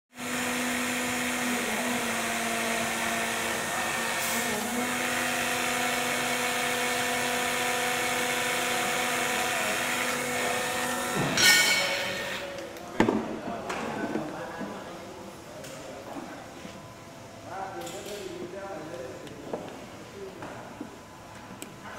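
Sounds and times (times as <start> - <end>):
hydraulic pump motor hum: 0.1 - 12.8.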